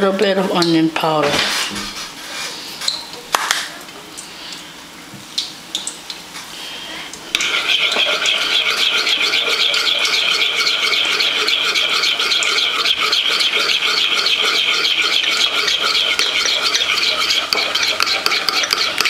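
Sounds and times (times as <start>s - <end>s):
spoon scraping around bowl: 7.4s - 19.0s.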